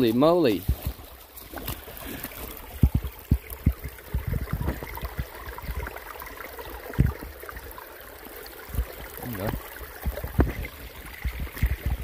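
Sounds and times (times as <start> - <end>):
creek water gurgling: 0.0 - 12.0
low thumps: 2.7 - 6.0.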